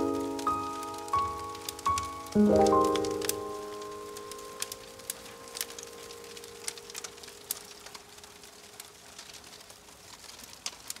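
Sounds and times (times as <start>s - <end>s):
background music: 0.0s - 7.3s
fire crackling and popping: 0.0s - 11.0s.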